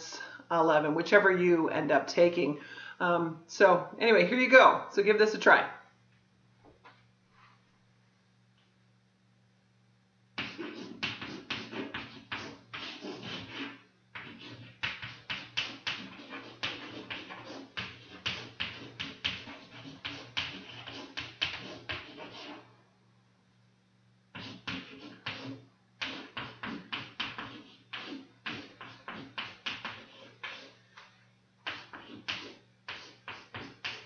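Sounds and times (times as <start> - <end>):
low steady hum: 0.0 - 34.0
chalk tapping and scraping on chalkboard: 10.4 - 22.7, 24.3 - 34.0.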